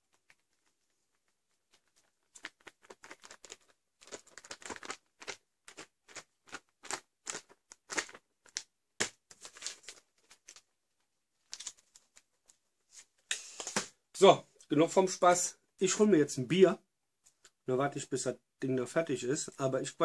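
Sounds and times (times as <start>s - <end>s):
pouch crinkling and rustling: 0.0s - 10.7s, 11.4s - 13.9s.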